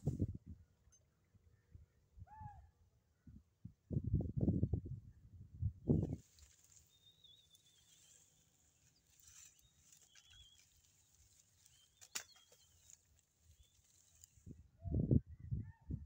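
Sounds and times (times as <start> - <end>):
faint high chirps: 6.0 - 14.3.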